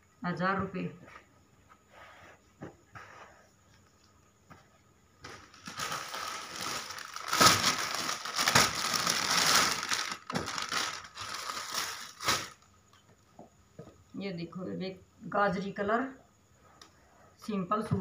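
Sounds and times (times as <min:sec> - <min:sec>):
plastic packaging crinkling: 0:05.3 - 0:12.8.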